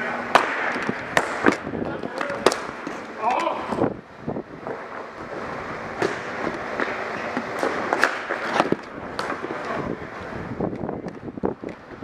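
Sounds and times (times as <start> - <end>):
steady background hiss: 0.0 - 12.0
sticks and ball clacking: 0.2 - 3.6, 6.0 - 9.8.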